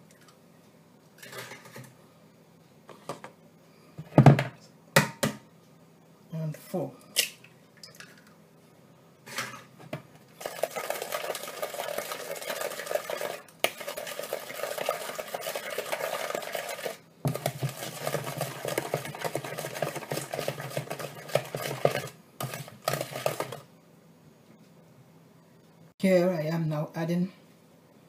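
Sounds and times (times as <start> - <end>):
wooden spoon beating batter in bowl: 10.4 - 23.7.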